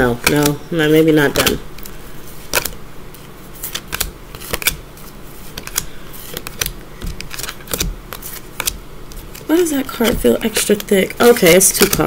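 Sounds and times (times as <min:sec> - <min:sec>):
cards snapping onto pile: 0:02.5 - 0:02.8, 0:03.6 - 0:04.8, 0:05.6 - 0:12.0.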